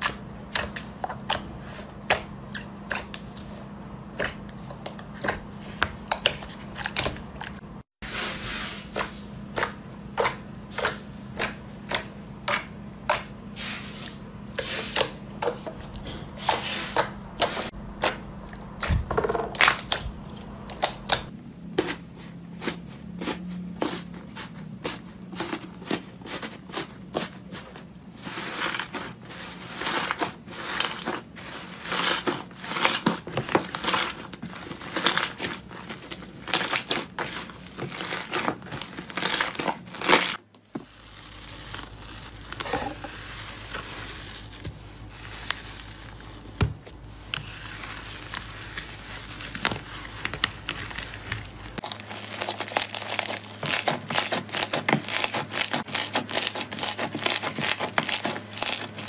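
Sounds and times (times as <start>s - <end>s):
slime popping and crackling: 31.9s - 46.6s, 47.3s - 59.0s.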